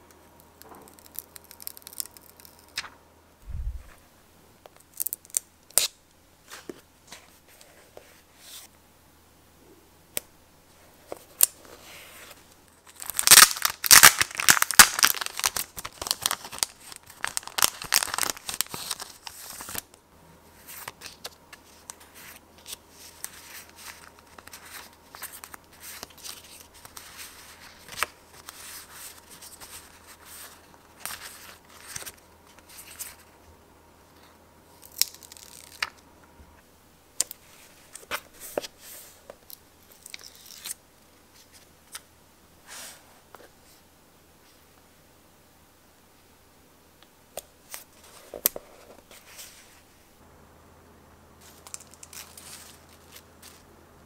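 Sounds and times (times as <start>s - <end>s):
wrapper tearing and crinkling: 12.8s - 19.8s, 34.8s - 35.9s, 51.5s - 53.6s
paper stickers rustling: 51.4s - 53.7s.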